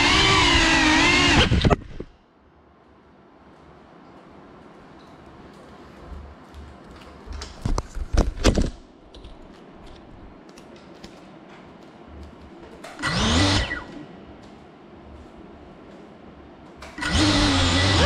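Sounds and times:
drone motors whirring: 0.0s - 2.1s, 13.0s - 14.0s, 17.0s - 18.0s.

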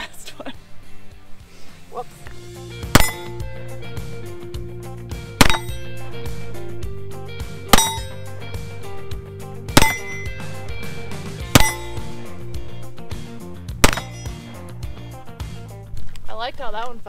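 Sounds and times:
steel plate target ringing: 2.9s - 3.5s, 5.4s - 6.0s, 7.7s - 8.3s, 9.7s - 10.5s, 11.4s - 12.3s, 13.8s - 14.5s
pistol shots: 13.8s - 14.3s.

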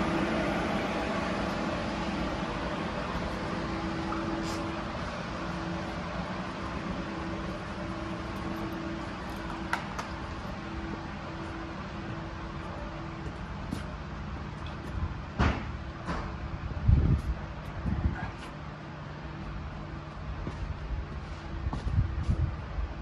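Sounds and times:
machine hum: 0.0s - 23.0s.

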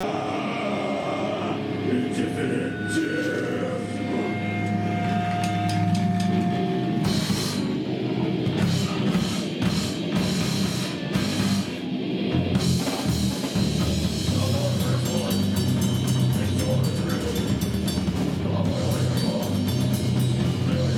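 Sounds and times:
distorted electric guitars: 0.0s - 20.9s
drums and cymbals: 4.8s - 20.9s.

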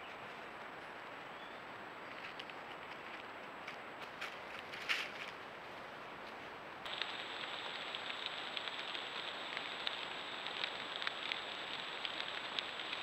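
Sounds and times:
crackles in dry leaf litter: 0.0s - 13.0s
steady hiss: 3.2s - 13.0s
faint high whine: 6.9s - 13.0s.

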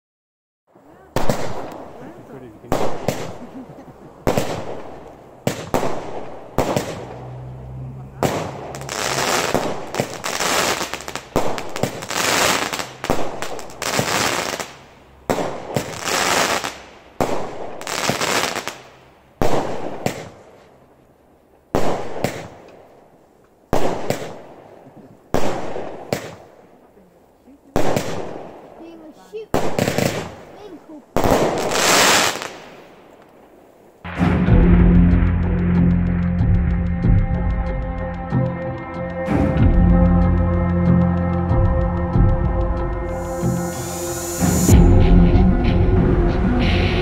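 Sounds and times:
dense firework crackling: 0.9s - 7.3s, 8.2s - 20.5s, 21.7s - 22.9s, 23.7s - 26.6s, 27.8s - 35.6s, 43.1s - 44.8s
firework aerial bursts: 0.9s - 7.3s, 8.2s - 20.4s, 27.8s - 32.9s, 43.1s - 45.0s
firework launch bangs: 2.7s - 3.5s, 4.3s - 7.2s, 8.2s - 20.4s, 21.8s - 22.7s, 31.2s - 32.9s.

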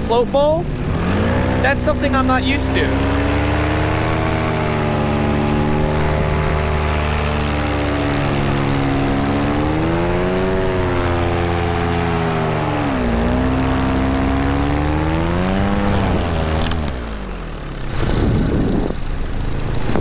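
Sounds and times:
paramotor engine running: 0.0s - 20.0s
sharp crack: 15.8s - 17.1s.

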